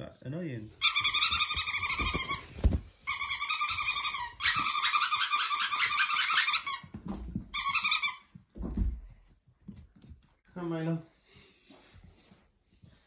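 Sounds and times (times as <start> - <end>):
squeaky toy squeaking: 0.8 - 6.9, 7.5 - 8.3.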